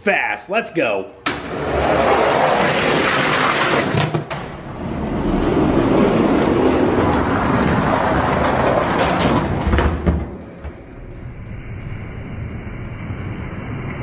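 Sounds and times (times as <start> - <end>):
toy trucks rolling on plastic track: 1.6 - 4.2, 5.0 - 9.8.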